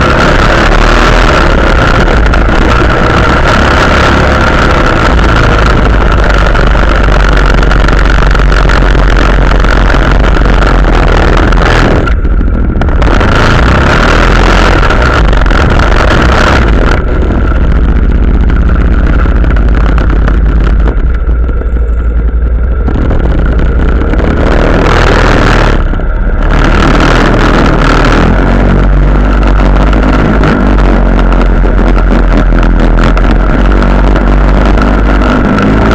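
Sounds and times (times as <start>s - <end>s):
quad bike engine running hard: 0.0s - 35.9s.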